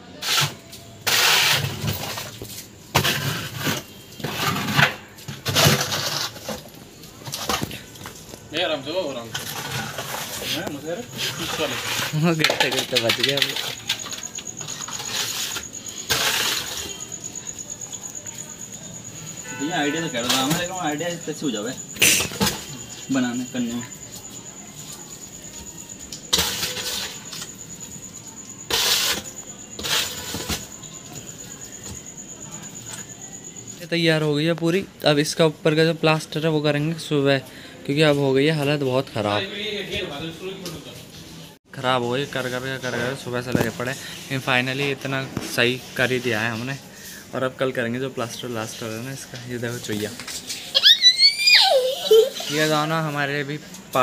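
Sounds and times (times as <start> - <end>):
cricket chirping: 0.0 - 54.0
mortar scraped over brickwork: 0.2 - 7.9, 9.3 - 17.3, 26.3 - 27.5, 28.7 - 30.8.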